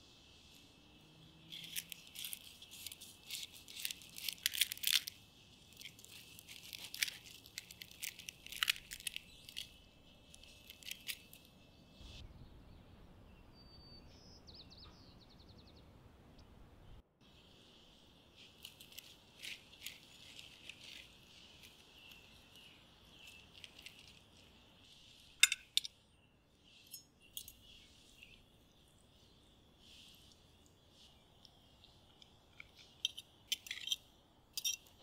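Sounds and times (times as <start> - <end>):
knife and fork crunching food: 1.5 - 9.8, 10.4 - 11.4, 18.6 - 24.4.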